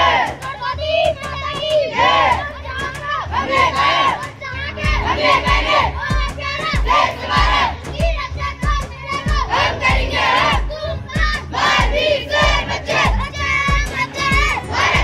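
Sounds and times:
children shouting together: 0.0s - 15.0s
low thumping beat: 0.0s - 15.0s.

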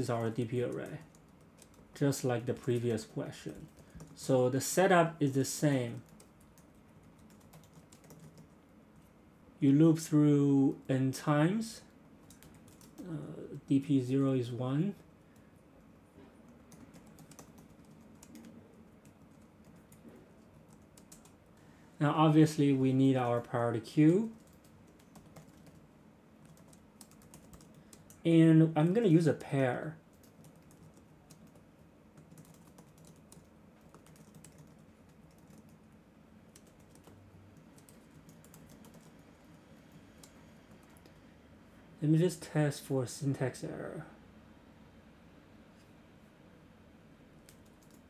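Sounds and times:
keyboard typing: 0.1s - 4.2s, 6.0s - 9.1s, 12.2s - 13.3s, 16.5s - 21.4s, 24.2s - 25.8s, 26.4s - 28.2s, 30.1s - 35.9s, 36.5s - 41.2s, 47.4s - 48.0s.

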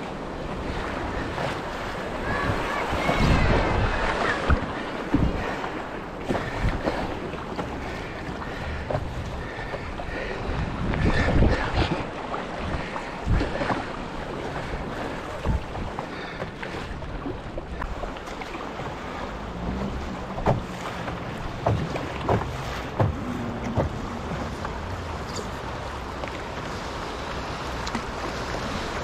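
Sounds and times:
wind buffeting microphone: 0.0s - 26.8s
river water rushing and splashing: 0.0s - 29.0s.

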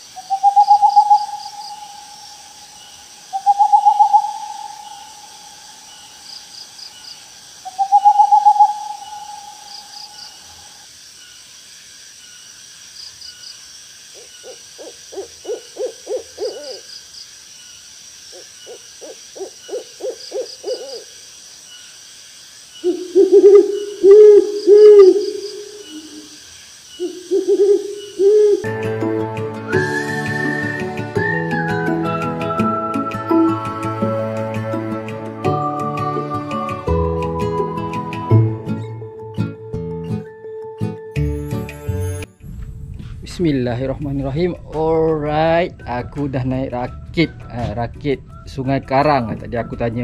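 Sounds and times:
bird hooting calls: 0.0s - 7.0s, 7.6s - 10.8s, 14.1s - 16.9s, 18.3s - 21.2s, 22.8s - 28.7s, 33.2s - 34.0s.

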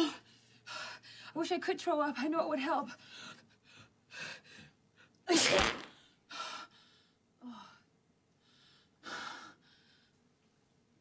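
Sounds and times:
woman sneezing: 5.3s - 5.9s
explosive bowel release: 5.3s - 6.0s.

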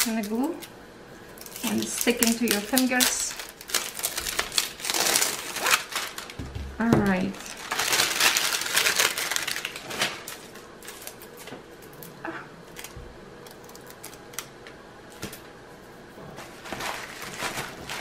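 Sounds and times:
plastic wrap clicking and crinkling: 1.4s - 6.5s, 7.1s - 12.1s, 12.7s - 15.4s, 16.6s - 18.0s
loud plastic rustle: 1.5s - 6.5s, 7.3s - 11.2s, 16.4s - 18.0s.

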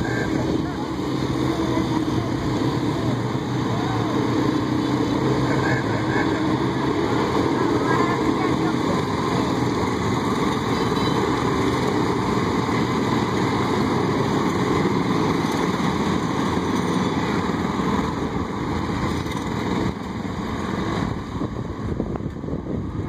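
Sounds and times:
small engines driving past: 0.0s - 21.8s.

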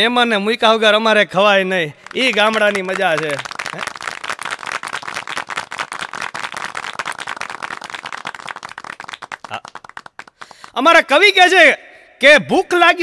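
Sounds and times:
audience clapping: 1.9s - 10.8s.

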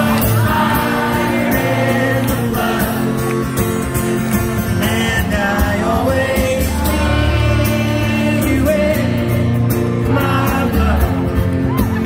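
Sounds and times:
pop-rock band playing: 0.0s - 12.0s
man singing: 4.7s - 11.5s.

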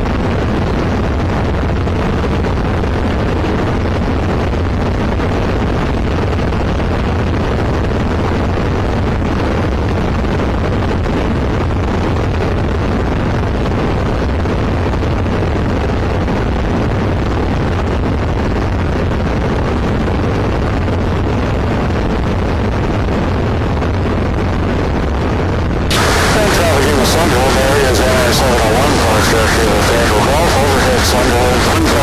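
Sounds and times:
wind noise: 0.0s - 32.0s
aircraft engine and propeller droning: 25.9s - 32.0s.

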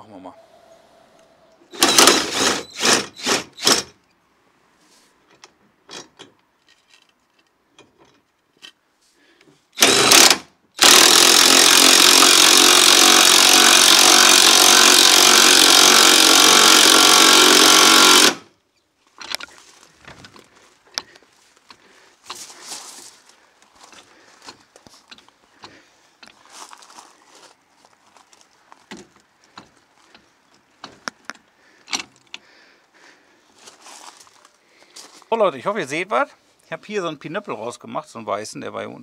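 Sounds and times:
cordless power driver running: 1.7s - 3.8s, 9.8s - 18.4s.

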